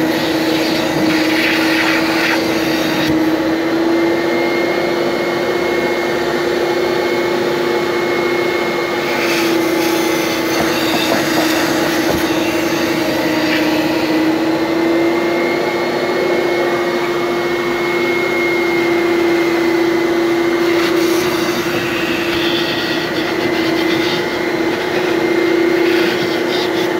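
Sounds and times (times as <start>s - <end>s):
suction on fabric: 0.0s - 26.9s
vacuum cleaner whining: 0.0s - 26.9s.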